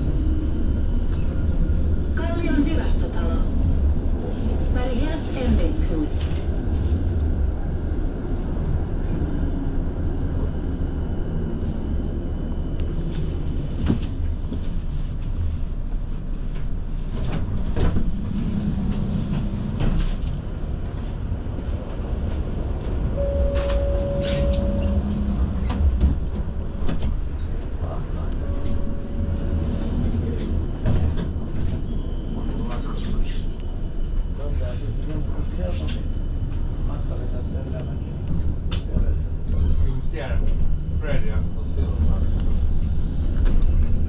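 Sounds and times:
tram running rumble: 0.0 - 44.0
steady tone: 23.2 - 30.4.

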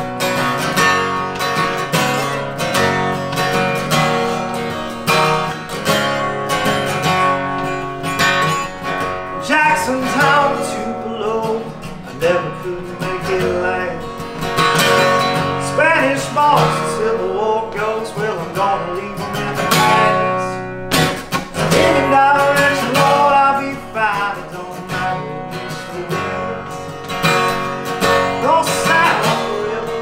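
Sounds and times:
acoustic guitar strumming: 0.0 - 30.0.

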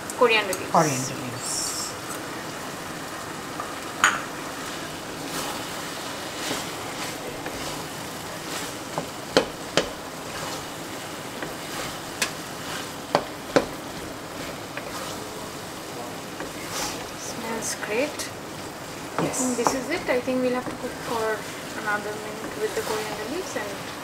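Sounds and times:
food sizzling in a pan: 0.0 - 24.0
spatula stirring food: 4.4 - 24.0
spatula knocking against pan: 9.3 - 10.0, 13.1 - 13.8.

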